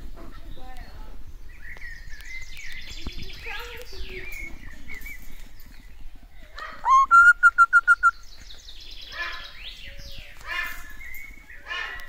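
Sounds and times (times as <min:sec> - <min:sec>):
parrot calling: 0:06.6 - 0:08.1
short piping bird notes: 0:06.8 - 0:08.4.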